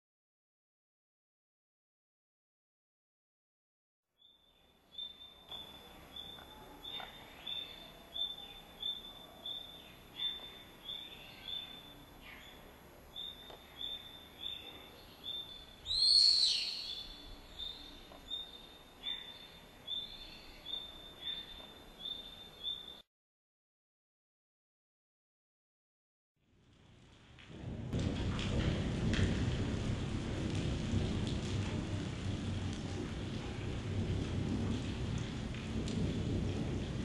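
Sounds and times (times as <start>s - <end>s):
birds chirping: 4.2s - 23.0s.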